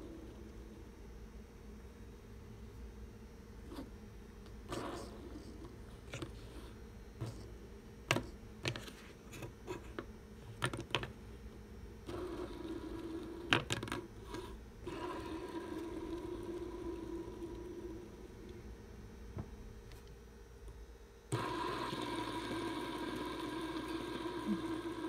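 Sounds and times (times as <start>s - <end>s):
fidget spinner whirring: 12.0s - 18.5s, 21.3s - 25.0s.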